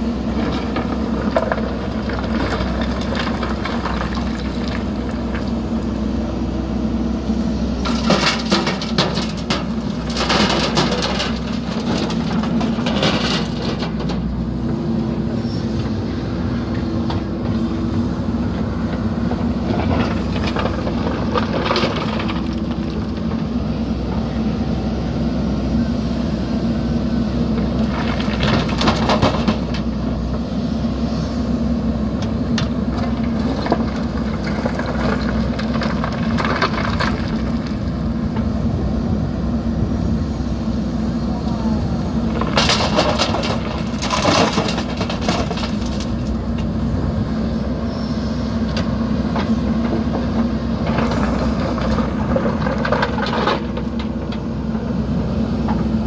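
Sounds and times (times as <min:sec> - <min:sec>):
diesel engine running: 0:00.0 - 0:56.0
clatter of stone in bucket: 0:07.9 - 0:14.2, 0:27.9 - 0:29.9, 0:32.6 - 0:37.9, 0:42.3 - 0:46.4, 0:50.8 - 0:54.4.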